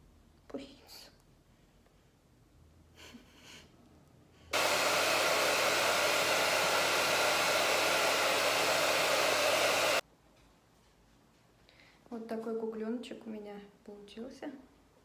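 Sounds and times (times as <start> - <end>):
hair dryer blowing: 4.5 - 10.0.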